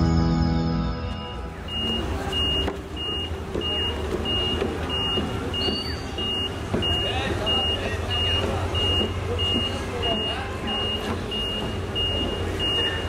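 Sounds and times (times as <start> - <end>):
background music: 0.0 - 1.7
low engine rumble: 0.0 - 13.0
electronic warning beeps: 1.0 - 13.0.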